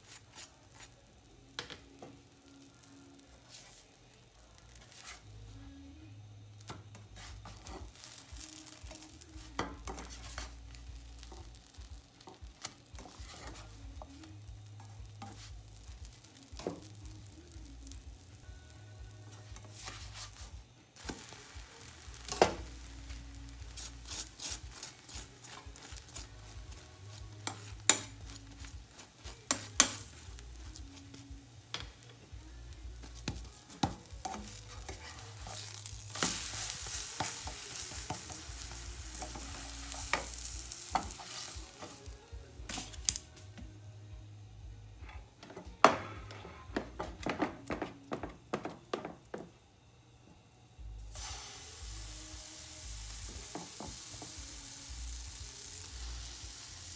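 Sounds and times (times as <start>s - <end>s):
pancake sizzling in frying pan: 0.0s - 5.4s, 6.6s - 43.4s, 51.1s - 56.9s
spatula scraping and knocking pan: 6.9s - 13.8s, 14.8s - 16.9s, 21.0s - 22.9s, 23.7s - 26.3s, 27.4s - 30.2s, 33.2s - 42.0s.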